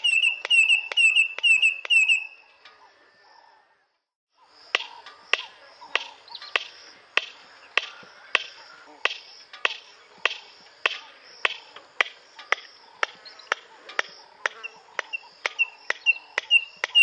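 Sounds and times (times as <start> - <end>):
bird calling in dry clicks: 0.0 - 2.8, 4.7 - 17.0.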